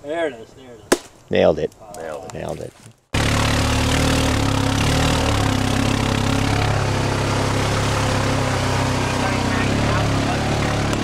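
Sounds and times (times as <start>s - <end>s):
rushing road noise: 3.2s - 11.0s.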